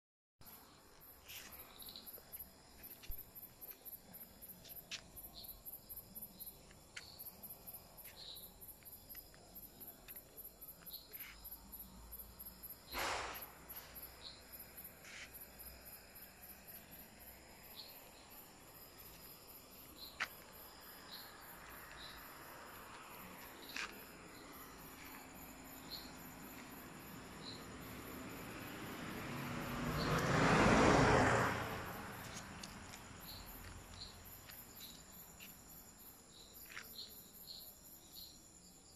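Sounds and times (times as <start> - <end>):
crickets chirping: 0.4 - 38.9
vehicle passing: 21.0 - 34.4.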